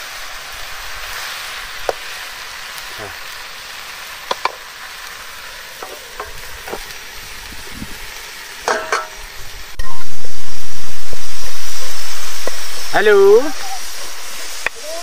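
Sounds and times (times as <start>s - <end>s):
faint sizzle: 0.0s - 15.0s
loud steady hiss: 0.0s - 15.0s
metal ladle clinking on pan: 8.7s - 9.2s.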